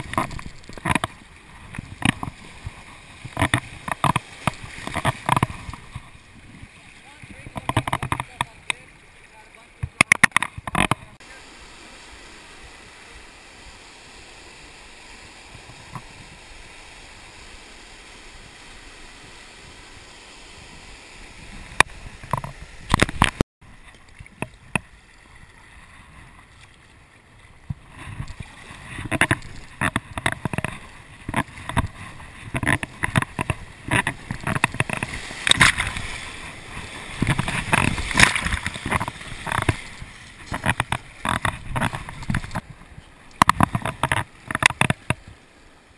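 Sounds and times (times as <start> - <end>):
kayak paddle strokes: 0.0 - 45.9
water splashing against boat: 0.0 - 45.9
whitewater rapids rushing: 28.4 - 45.2.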